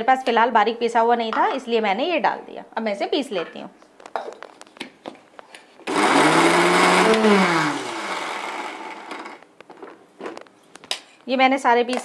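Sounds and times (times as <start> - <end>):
mixer grinder motor whirring: 5.8 - 9.5.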